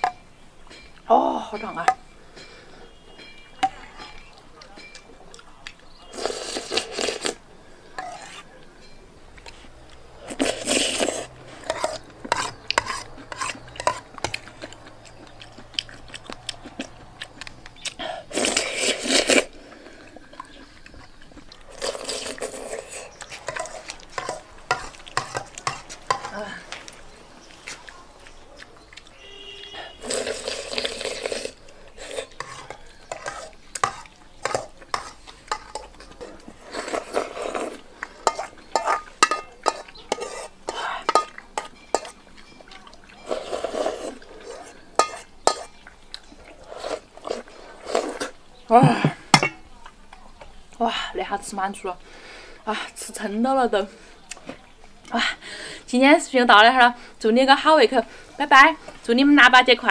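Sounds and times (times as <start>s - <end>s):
loud slurps of broth: 6.1s - 7.4s, 10.2s - 13.7s, 17.8s - 20.6s, 21.7s - 24.4s, 29.4s - 35.2s, 36.2s - 38.5s, 43.2s - 44.8s, 46.5s - 48.4s
metal spoon scraping enamel basin: 8.0s - 15.2s, 21.9s - 26.4s, 29.4s - 42.3s, 43.2s - 45.8s, 46.6s - 49.7s.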